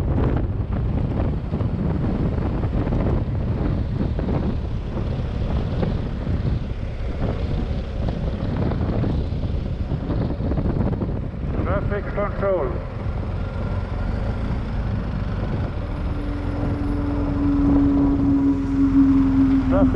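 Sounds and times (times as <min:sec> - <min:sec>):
motorcycle engine running: 0:00.0 - 0:11.6, 0:12.7 - 0:19.9
wind noise on microphone: 0:00.0 - 0:19.9.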